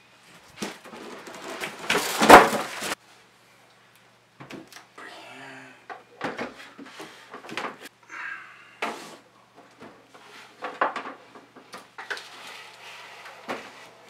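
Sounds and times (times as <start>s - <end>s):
plastic film crinkling: 0.6s - 3.0s.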